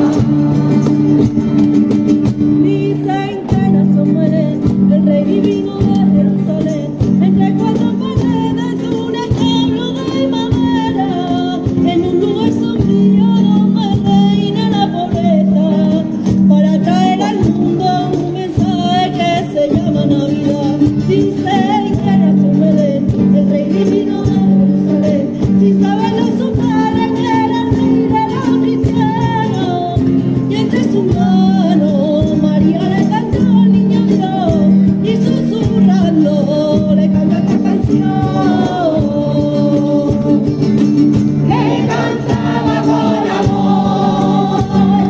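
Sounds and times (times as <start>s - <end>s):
acoustic guitars: 0.0s - 45.0s
choir singing: 41.5s - 45.0s.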